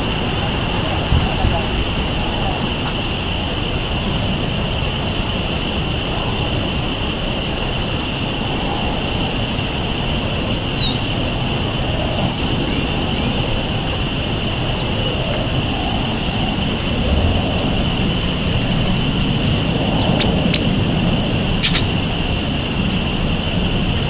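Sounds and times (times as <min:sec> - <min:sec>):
constant high hum: 0:00.0 - 0:24.0
distant outdoor rumble: 0:00.0 - 0:24.0
gliding bird chirps: 0:21.6 - 0:22.0.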